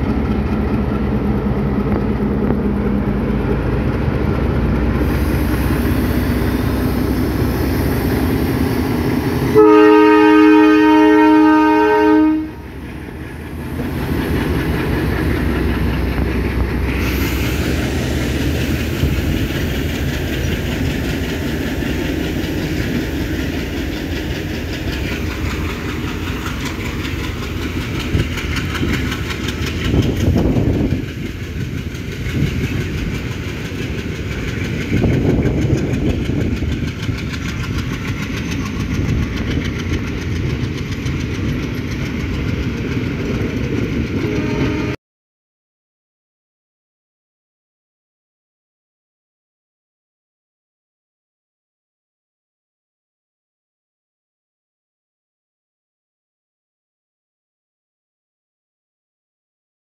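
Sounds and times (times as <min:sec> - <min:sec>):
diesel locomotive engine running: 0:00.0 - 0:45.0
train horn blast: 0:09.4 - 0:12.8, 0:44.2 - 0:45.0
wheels clattering on rails: 0:12.8 - 0:44.5.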